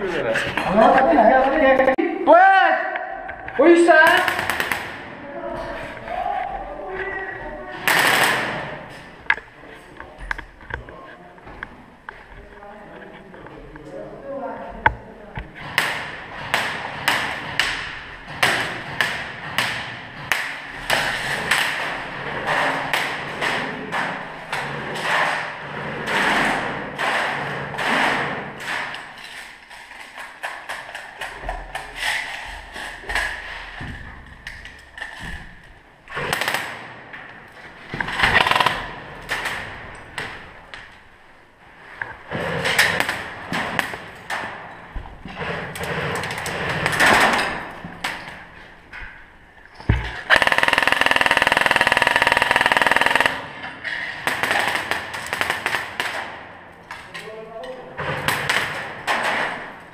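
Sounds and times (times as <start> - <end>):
airsoft rifle full-auto fire: 38.2 - 39.0, 50.3 - 53.6.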